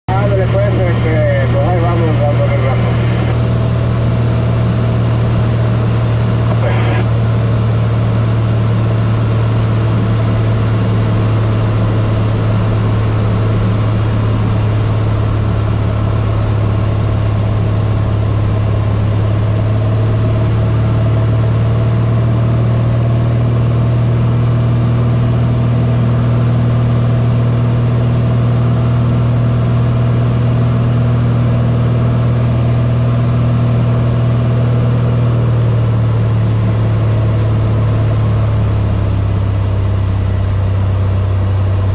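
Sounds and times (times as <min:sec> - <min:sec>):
propeller plane engine droning: 0:00.1 - 0:41.9.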